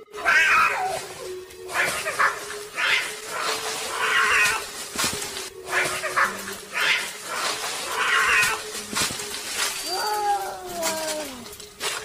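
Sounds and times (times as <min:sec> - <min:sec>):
cat calling: 0:00.0 - 0:04.7, 0:05.7 - 0:08.7.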